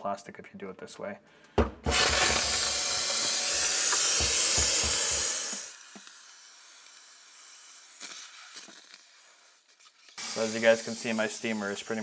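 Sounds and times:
steam cleaner hissing: 1.9s - 9.5s, 10.2s - 12.0s.

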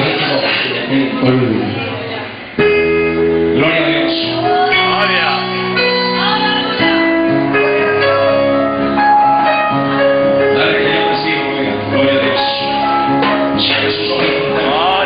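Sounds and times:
electronic keyboard chords: 2.5s - 15.0s
man singing into microphone: 3.5s - 5.9s, 10.4s - 15.0s.

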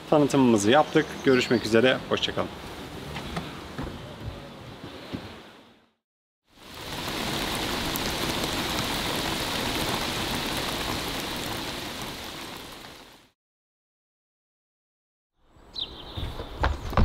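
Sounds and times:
steady rain falling: 6.5s - 13.4s.

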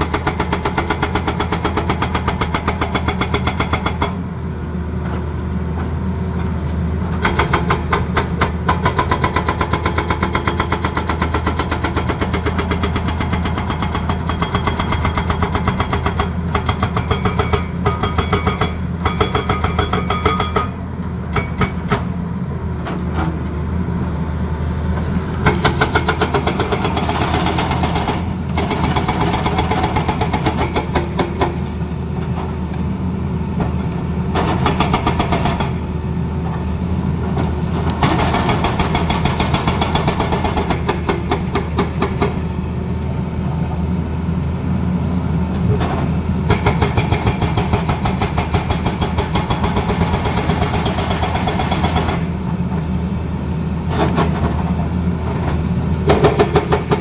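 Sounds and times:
hydraulic breaker hammering rock: 0.0s - 4.2s, 7.2s - 22.1s, 25.4s - 31.6s, 34.4s - 35.9s, 38.0s - 42.4s, 46.5s - 52.4s, 56.1s - 57.0s
diesel engine running under load: 41.4s - 57.0s.

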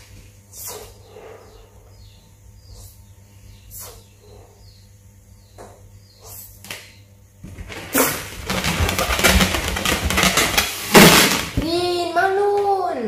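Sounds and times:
balloon crackling and rustling: 7.5s - 11.9s.

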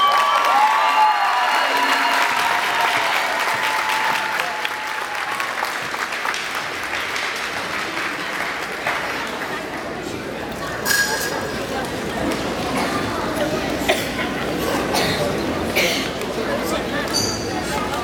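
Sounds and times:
crowd cheering: 0.0s - 9.4s
crowd applauding: 0.0s - 10.0s.

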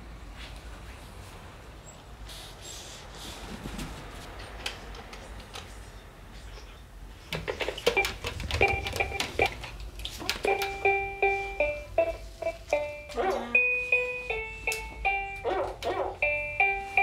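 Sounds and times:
toy keyboard beeping notes: 7.8s - 9.6s, 10.4s - 15.5s, 16.2s - 17.0s.

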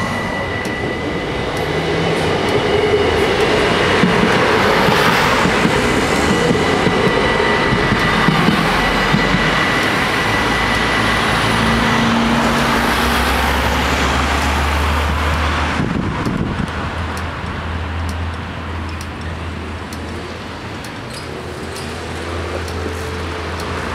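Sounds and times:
train running noise: 0.0s - 23.9s.

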